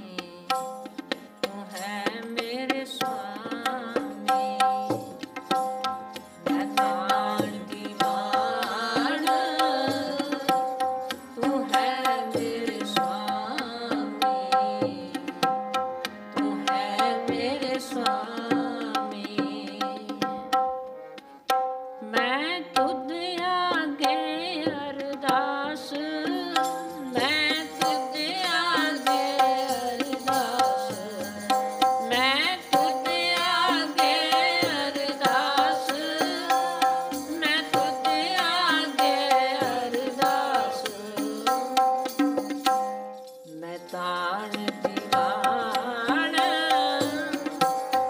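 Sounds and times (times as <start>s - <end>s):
woman singing: 0.0s - 15.7s, 16.4s - 20.6s, 22.0s - 48.0s
tabla: 0.0s - 48.0s
harmonium chords: 5.2s - 19.6s.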